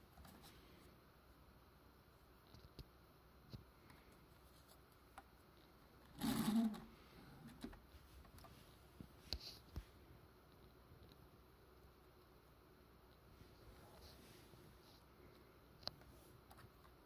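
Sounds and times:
plastic toy rustling scrape: 6.2s - 6.9s.

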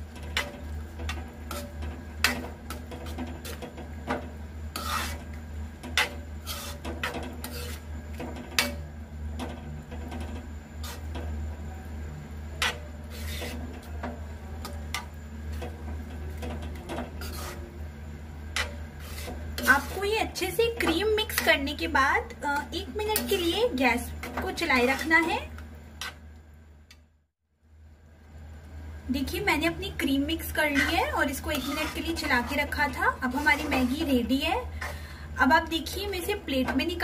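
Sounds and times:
steady low hum: 0.0s - 37.0s
spoon scraping metal pan: 0.1s - 7.9s, 10.8s - 11.2s, 12.6s - 17.7s, 18.5s - 26.2s, 30.4s - 35.0s.

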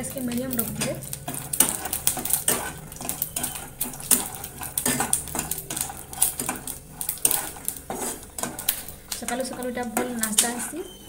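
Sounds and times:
peanuts rattling in a pan: 0.0s - 11.0s
steel spatula scraping a pan: 0.5s - 11.0s.

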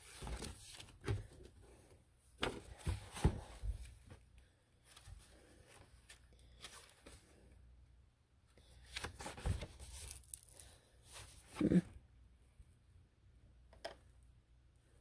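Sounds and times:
book pages rustling: 0.0s - 1.6s, 4.8s - 7.4s, 8.7s - 11.8s.

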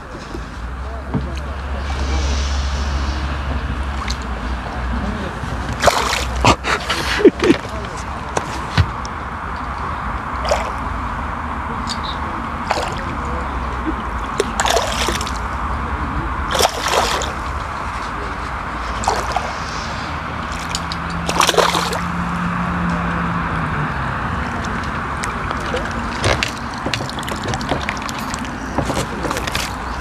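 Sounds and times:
outdoor background noise: 0.0s - 30.0s
fish splashing in water: 5.6s - 7.3s, 10.3s - 10.9s, 12.5s - 15.6s, 16.4s - 22.5s, 24.4s - 30.0s.

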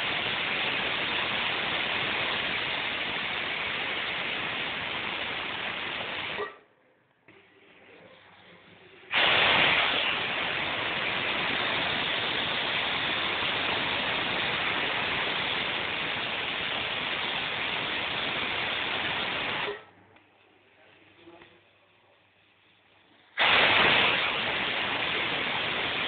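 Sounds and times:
pressure cooker whistling: 0.0s - 6.6s, 9.1s - 19.9s, 23.4s - 26.0s.

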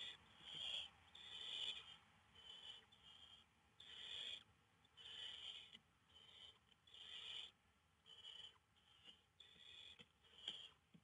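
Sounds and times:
owl nestlings hissing calls: 0.0s - 10.8s.

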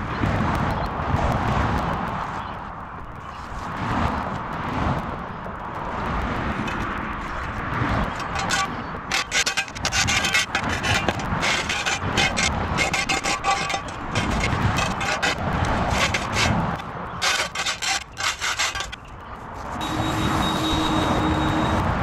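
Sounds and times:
road traffic hum: 0.0s - 22.0s
shovel scraping grit on asphalt: 8.2s - 20.5s.

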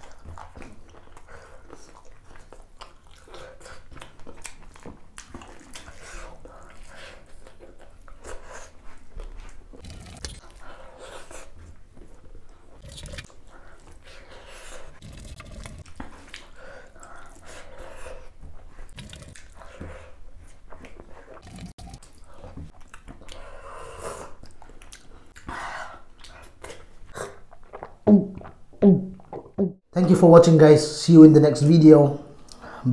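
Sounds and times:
food crunching: 0.0s - 10.6s, 11.6s - 14.0s, 14.8s - 17.6s, 18.6s - 19.8s, 20.6s - 23.5s
person chewing food: 0.0s - 29.6s.

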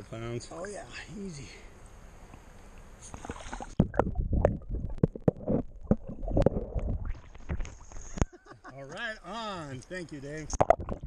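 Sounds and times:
river water noise: 0.6s - 10.8s
muffled underwater sloshing: 3.0s - 8.5s.

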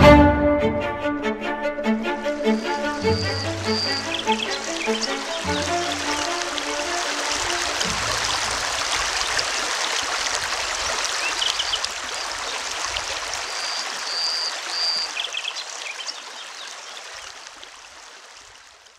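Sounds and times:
river water flowing: 1.3s - 18.9s
high chirps: 2.4s - 6.0s.

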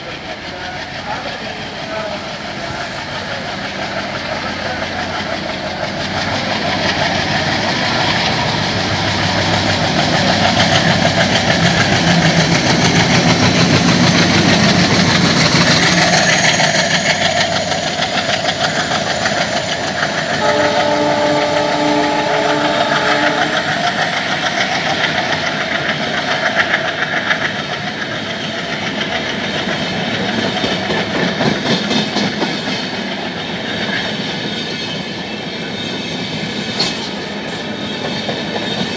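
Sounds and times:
diesel locomotive engine: 0.0s - 38.9s
train wheels clacking: 0.0s - 38.9s
train horn blast: 20.4s - 23.7s.

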